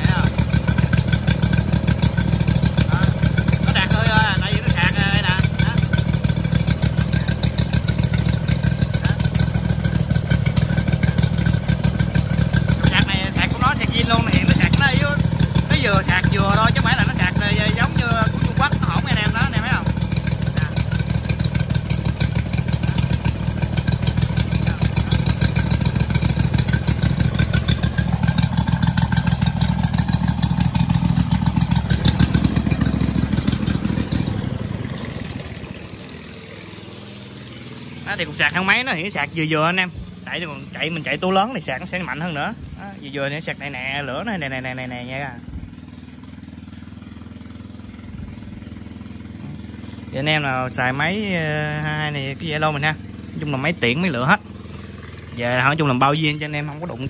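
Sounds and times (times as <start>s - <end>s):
engine running steadily: 0.0s - 57.0s.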